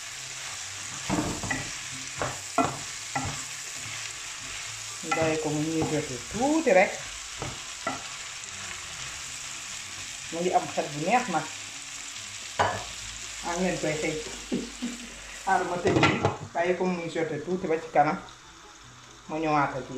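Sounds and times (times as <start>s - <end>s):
food sizzling in a frying pan: 0.0s - 19.9s
wooden spoon knocking on pan: 1.0s - 3.5s, 5.0s - 6.1s, 7.4s - 8.0s.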